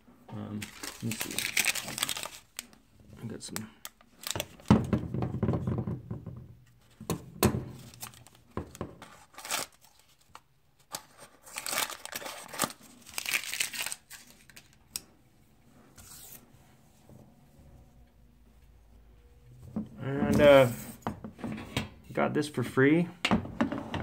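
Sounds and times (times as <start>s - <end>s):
paper crinkling: 0.5s - 4.7s, 7.8s - 15.0s.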